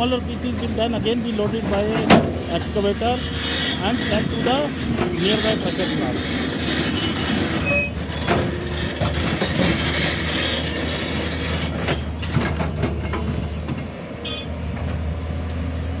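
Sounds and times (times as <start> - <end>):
diesel engine running: 0.0 - 16.0
bucket scraping soil and rock: 1.7 - 12.2.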